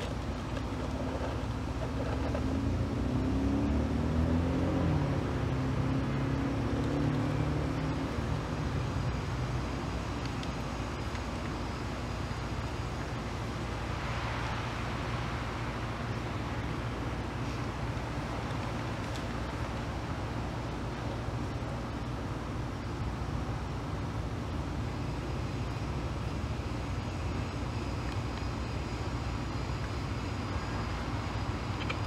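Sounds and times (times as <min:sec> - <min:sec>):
low rumble of traffic: 0:00.0 - 0:32.0
vehicle passing close by: 0:02.4 - 0:08.8.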